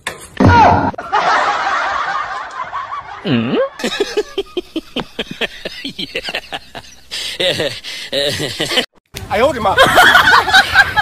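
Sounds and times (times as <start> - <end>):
person giggling: 3.2 - 8.9.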